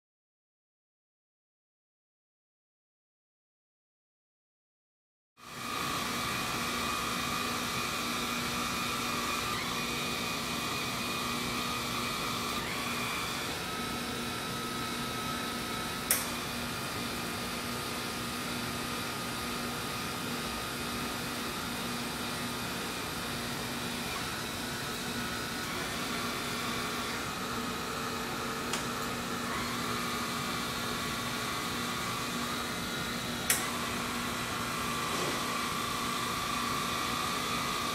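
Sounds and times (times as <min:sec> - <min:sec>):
motors whirring and humming: 0:05.5 - 0:17.4, 0:19.4 - 0:37.9.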